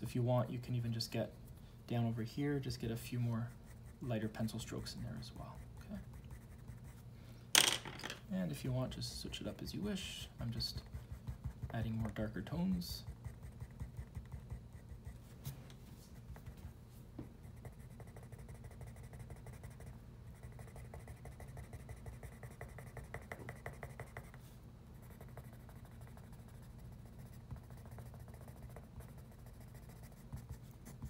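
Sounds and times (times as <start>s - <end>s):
pencil scratching on paper: 3.4s - 7.1s, 10.4s - 15.2s, 17.4s - 24.4s, 25.0s - 31.0s.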